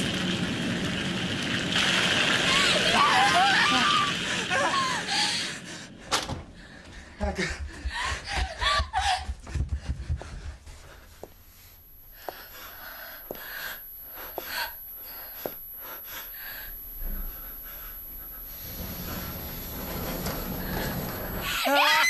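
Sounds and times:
person gasping and panting: 7.0 - 11.1
steady hiss: 10.8 - 21.6.

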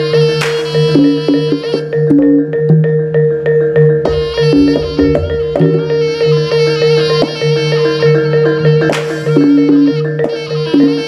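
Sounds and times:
reedy shawm melody: 0.0 - 11.0
held low tones: 3.9 - 8.2
drum strokes: 4.0 - 11.0
sharp cymbal crash: 4.1 - 7.5.

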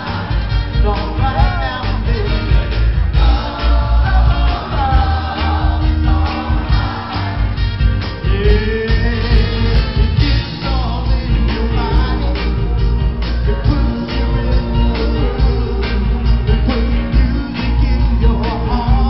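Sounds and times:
backing vocalists singing: 0.0 - 19.0
bass: 0.0 - 19.0
drums: 0.0 - 19.0
male lead singer: 0.0 - 19.0.

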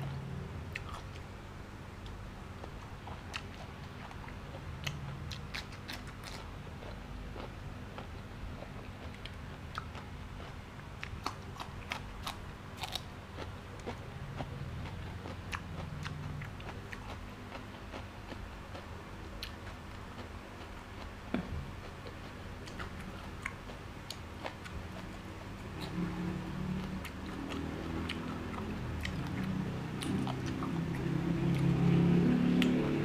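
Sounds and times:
crunching of raw vegetables: 4.8 - 18.8.

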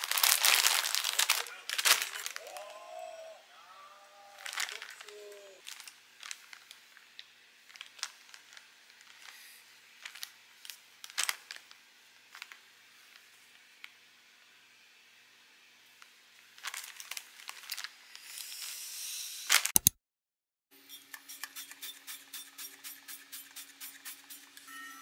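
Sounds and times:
plastic bag rustling and crinkling: 0.0 - 2.8, 4.4 - 13.2, 16.5 - 18.6.

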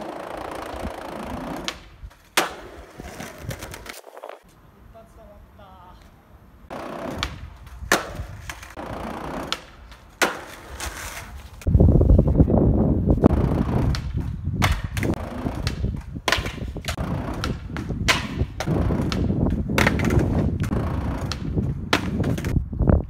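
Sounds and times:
skateboard clacking on concrete: 0.0 - 4.0, 6.8 - 11.7, 13.6 - 22.6.

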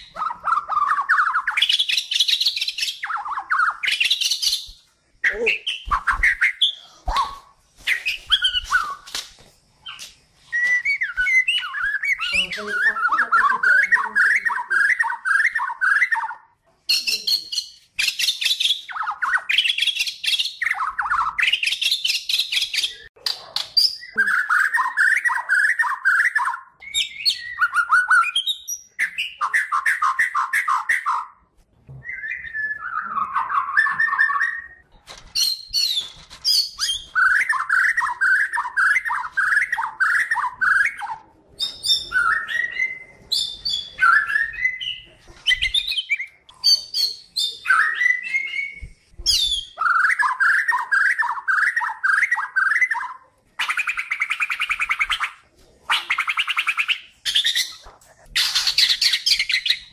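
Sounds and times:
songbird singing: 0.0 - 9.2, 9.8 - 31.3.

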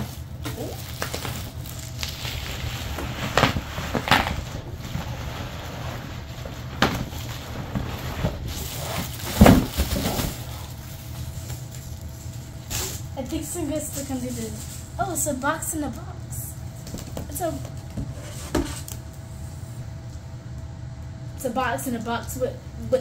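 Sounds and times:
bubble wrap rustling and crinkling: 0.0 - 16.0.

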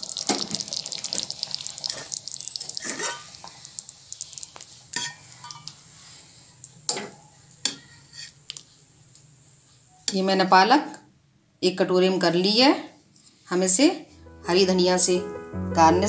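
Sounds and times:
metal ladle scraping a metal pot: 2.8 - 3.3.

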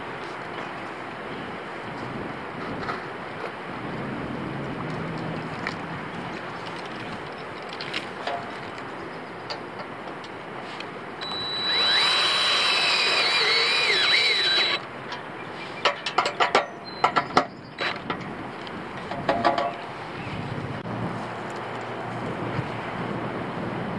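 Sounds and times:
cordless drill driving a screw: 11.2 - 14.8
sharp clicks: 11.2 - 15.2.

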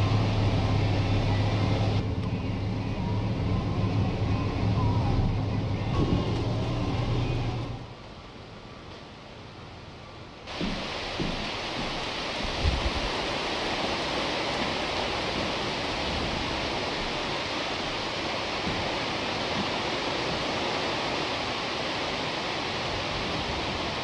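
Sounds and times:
low bumps: 0.0 - 7.8
steady hiss: 0.0 - 24.0.

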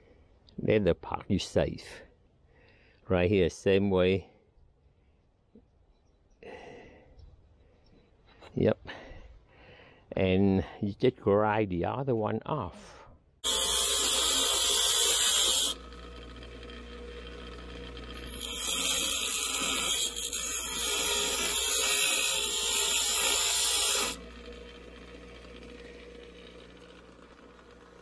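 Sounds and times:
bench grinder grinding metal: 13.4 - 28.0
motor humming: 13.4 - 28.0.

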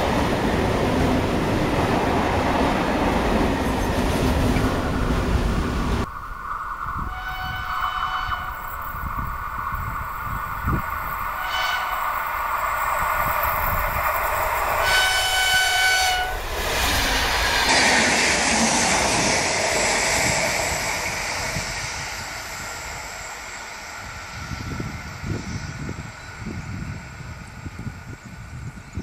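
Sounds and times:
train wheels rolling past: 0.0 - 28.8
wind gusts on microphone: 0.0 - 29.0
train horn blast: 7.0 - 8.7, 11.4 - 12.2, 14.8 - 16.4.

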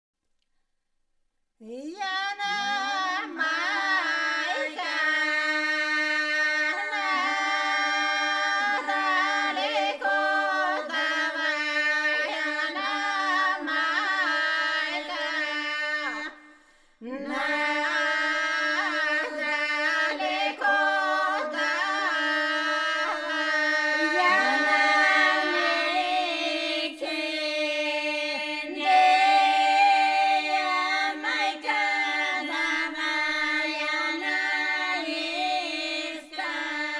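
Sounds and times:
woman singing melody: 1.6 - 4.9
women singing drone note: 1.7 - 36.9.

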